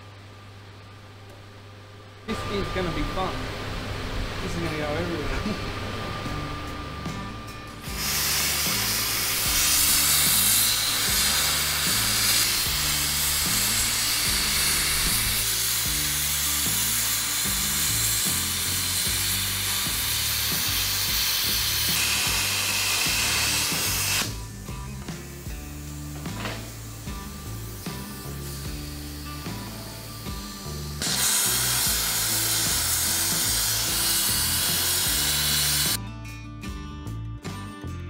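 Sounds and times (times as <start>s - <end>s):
background music with bass line: 5.9s - 38.0s
cutting torch hissing: 7.8s - 36.0s.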